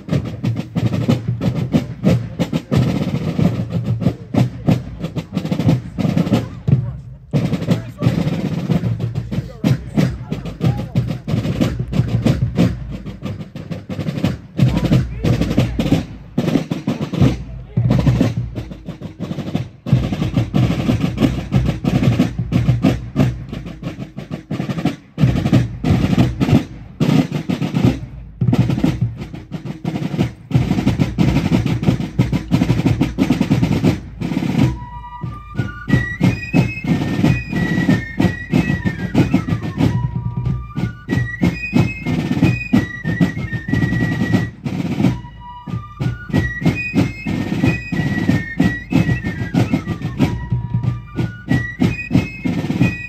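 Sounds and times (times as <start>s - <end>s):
marching drums with rolls: 0.0s - 53.0s
fifes playing a tune: 0.1s - 53.0s.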